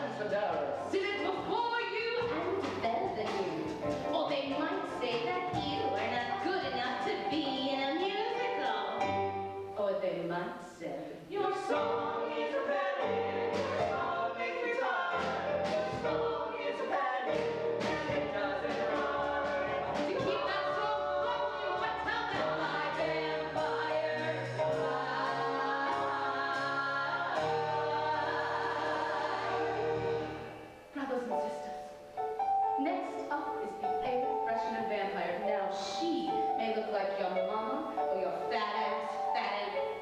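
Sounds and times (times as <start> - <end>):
instrumental accompaniment: 0.3 - 9.8, 11.4 - 40.0
cast singing together: 11.2 - 30.9.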